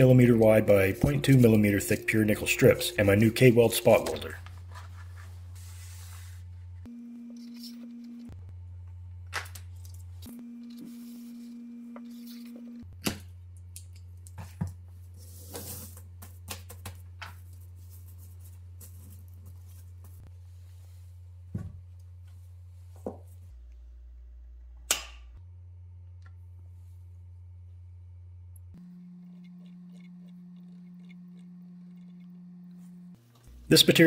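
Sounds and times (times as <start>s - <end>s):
steady low hum: 0.0s - 9.3s, 18.0s - 34.0s.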